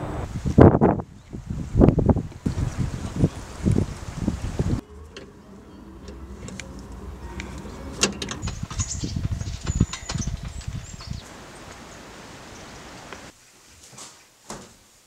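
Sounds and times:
chain railings clinking: 4.8 - 11.3
sharp clicks and knocks: 6.0 - 11.1
footsteps on wooden bridge boards: 8.0 - 11.8.

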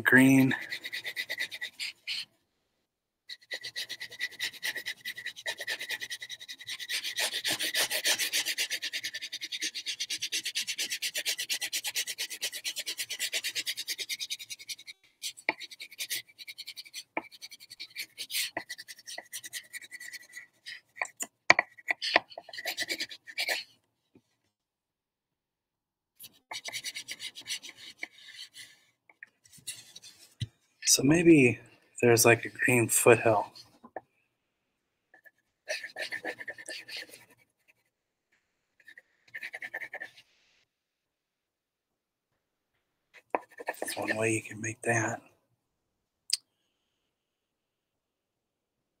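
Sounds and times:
crayon scribbling on paper: 0.3 - 2.3, 3.3 - 23.8, 26.5 - 28.8, 29.5 - 30.4, 35.2 - 37.9, 38.8 - 40.4, 43.4 - 44.4.

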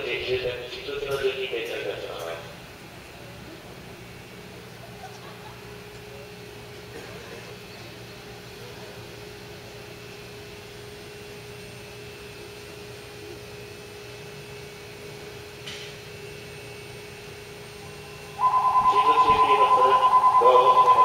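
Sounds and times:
electric train humming: 17.2 - 21.0
steady tone: 18.4 - 21.0.

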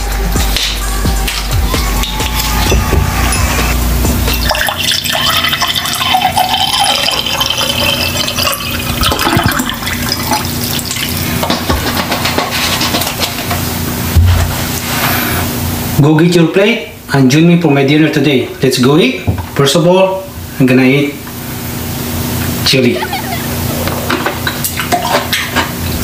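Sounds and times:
water pouring into glass mug: 4.3 - 11.5.

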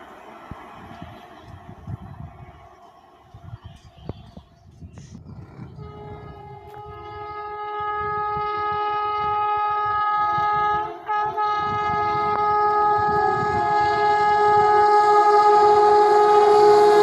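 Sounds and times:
locomotive air horn: 5.8 - 17.0.

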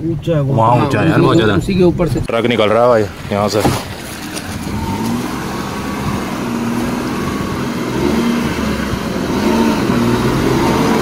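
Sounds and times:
vehicle engine running: 3.1 - 11.0.

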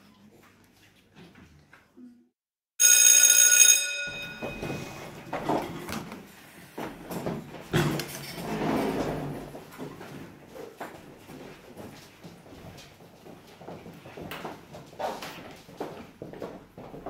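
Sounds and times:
school bell ringing: 2.8 - 5.2
chairs and desks scraping: 4.2 - 17.0.

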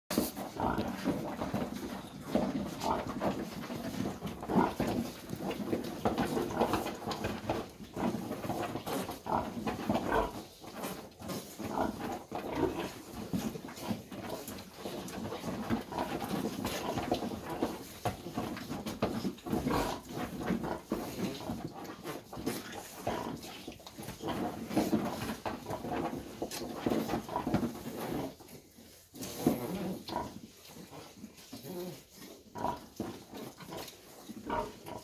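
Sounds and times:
pigs grunting and squealing: 0.2 - 28.4, 29.2 - 35.0.

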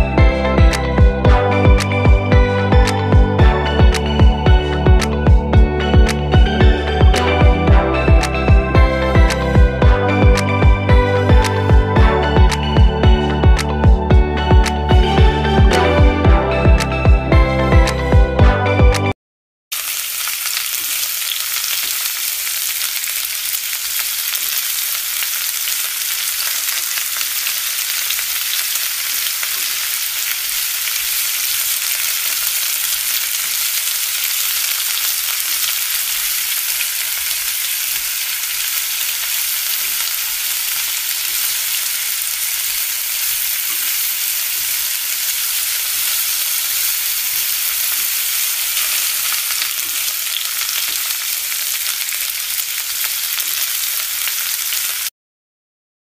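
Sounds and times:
batter sizzling in hot oil: 19.7 - 55.1.

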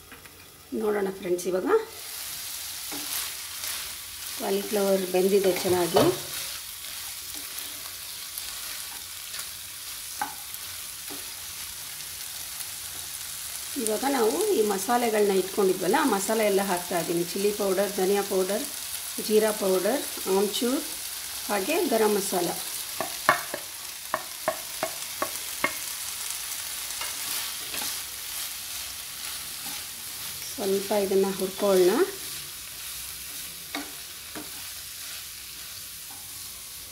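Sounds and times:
vegetables sizzling in oil: 0.0 - 36.9
wooden spatula knocking pan: 23.0 - 25.9.

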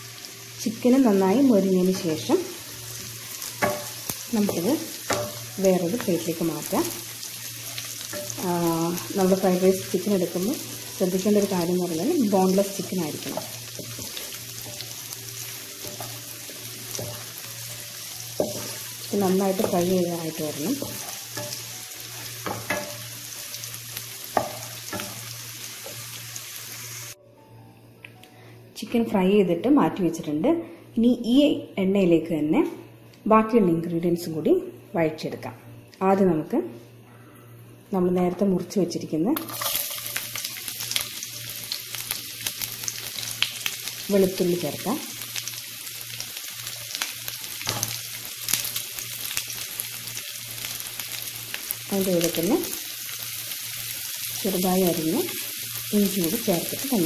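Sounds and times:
chicken sizzling in hot oil: 0.0 - 27.2, 39.4 - 57.0.

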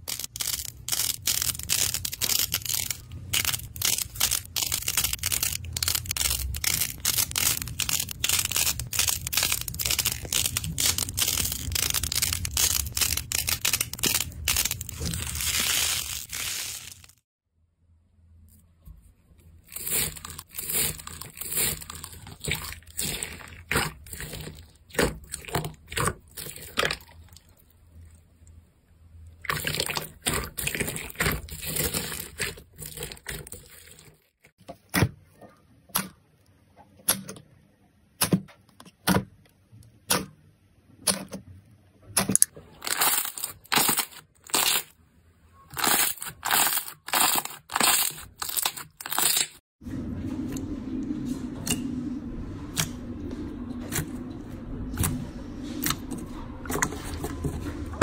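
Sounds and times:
crunchy slime crackling: 0.0 - 17.2, 42.8 - 45.0, 45.7 - 49.6.

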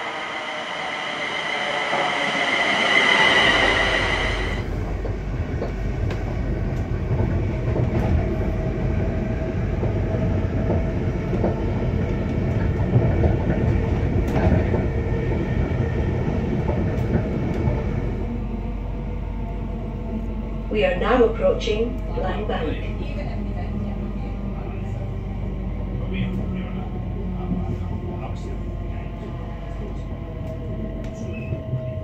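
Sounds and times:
electric train high whine: 0.0 - 5.6
train rumbling at speed: 0.0 - 32.0.

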